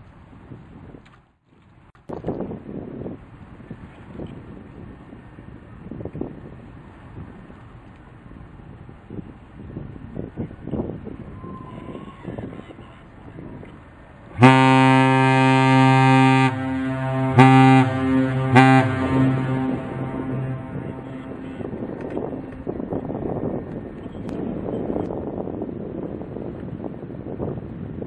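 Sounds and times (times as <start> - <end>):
wind buffeting microphone: 0.0 - 1.2, 1.8 - 28.0
deep ship horn blasts: 14.4 - 23.5.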